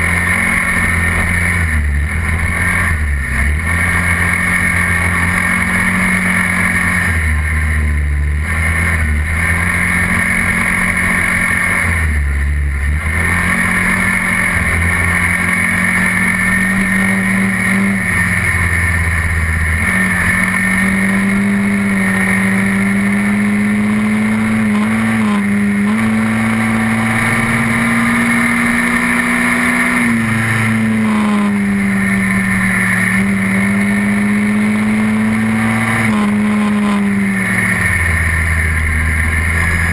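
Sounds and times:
quad bike engine running: 0.0s - 39.9s.

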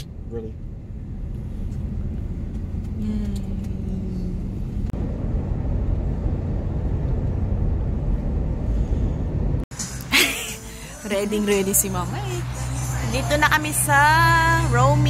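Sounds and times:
car engine and tyres rumble: 0.0s - 15.0s
faint low falling tone: 2.8s - 9.6s.

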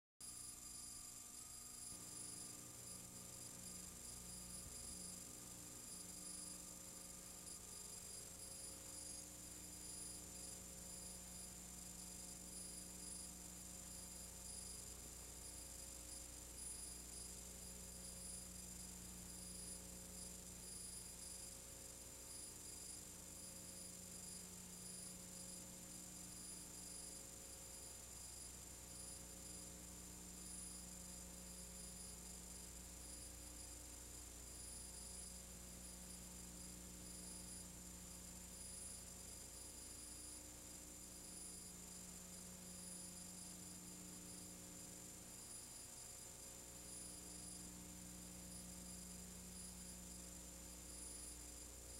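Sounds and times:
faint electrical hum and hiss: 0.2s - 51.9s.

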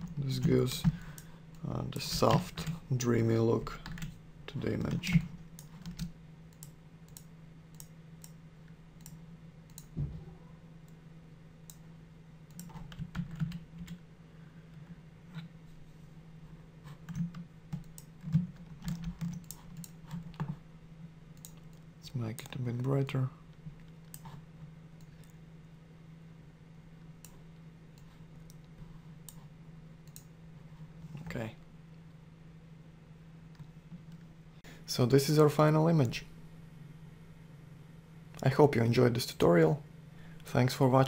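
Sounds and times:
faint low hum: 0.0s - 41.0s
keyboard and mouse clicks: 4.9s - 8.4s, 12.5s - 14.0s, 17.0s - 20.6s, 21.4s - 21.8s, 30.0s - 30.3s.

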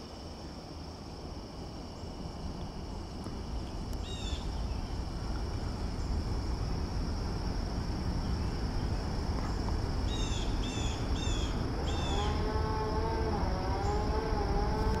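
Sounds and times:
high-pitched insect drone: 4.0s - 15.0s
wavering moo-like sound: 11.8s - 15.0s.

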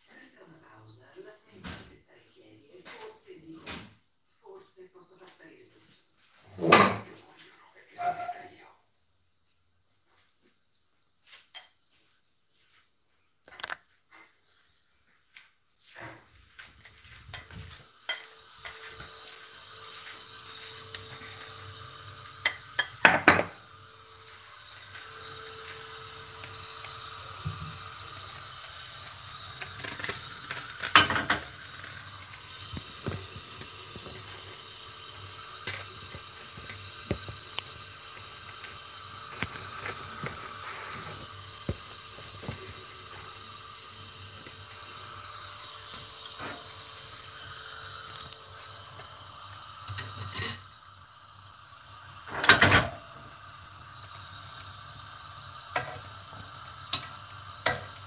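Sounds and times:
faint steady hiss: 0.0s - 58.0s
cookware clanking: 17.3s - 18.8s, 22.4s - 23.6s, 29.8s - 31.8s, 49.9s - 50.7s, 52.3s - 53.0s.

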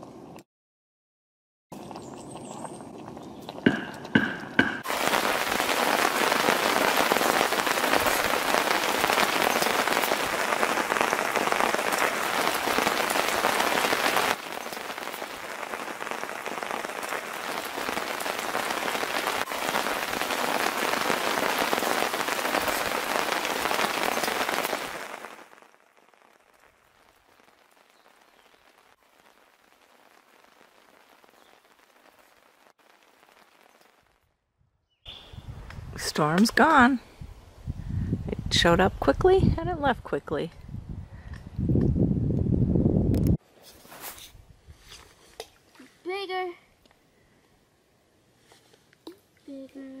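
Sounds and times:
heavy rain on forest: 4.1s - 34.3s.

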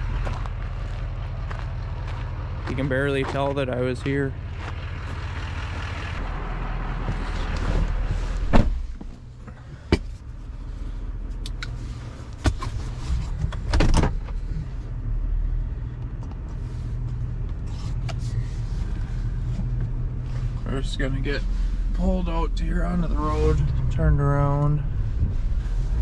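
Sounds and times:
truck engine idling: 0.0s - 12.3s
door shutting: 8.4s - 8.9s.

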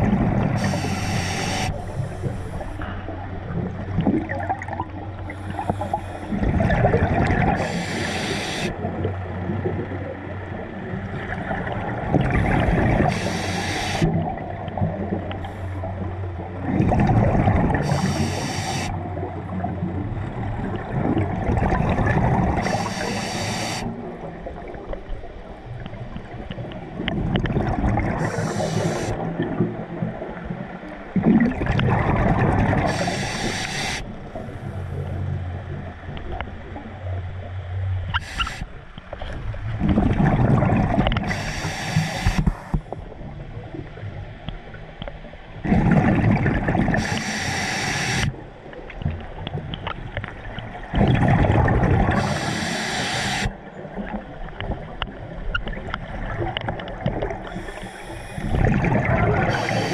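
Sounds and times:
diver exhaling bubbles: 31.2s - 34.0s, 39.8s - 42.7s, 45.6s - 47.6s, 50.9s - 53.6s, 57.1s - 59.9s.

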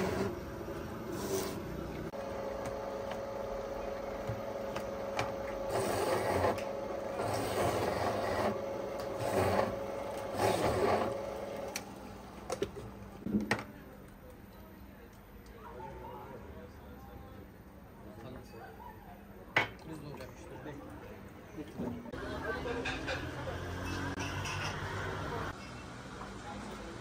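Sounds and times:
juicer grinding fruit: 0.0s - 13.0s
electric juicer motor whine: 2.2s - 12.4s.

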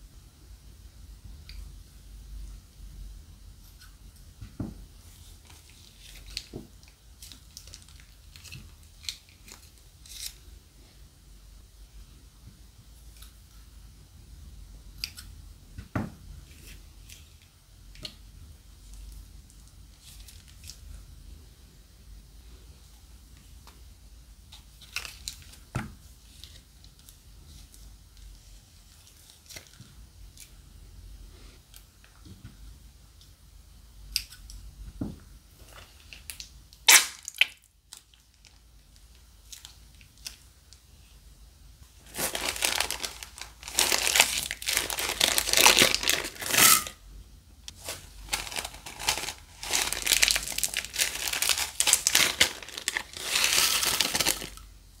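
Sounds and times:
slime crackling: 42.0s - 46.9s, 47.8s - 54.6s
plastic bag crinkling: 42.0s - 47.0s, 47.7s - 54.7s.

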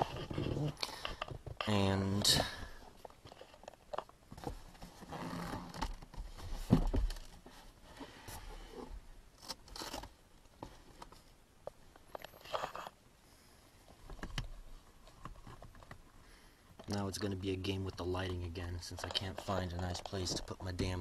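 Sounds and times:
plastic trim rustling and scraping: 17.6s - 21.0s.

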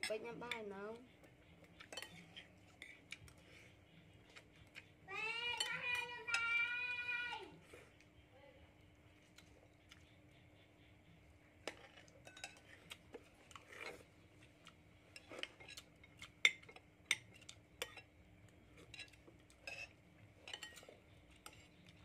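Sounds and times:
spoons clinking on ceramic bowls: 1.8s - 3.0s, 11.7s - 12.8s, 18.8s - 21.8s.

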